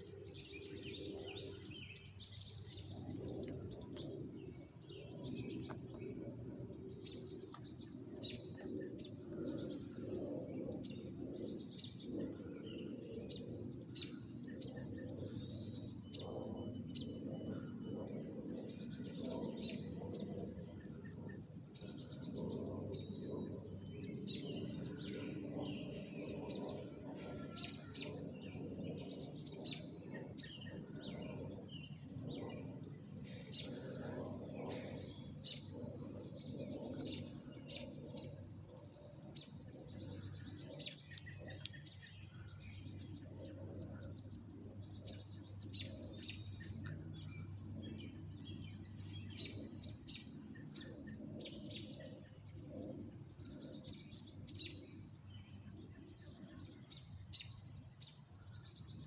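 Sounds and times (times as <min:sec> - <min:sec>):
songbirds chirping: 0:00.0 - 0:59.0.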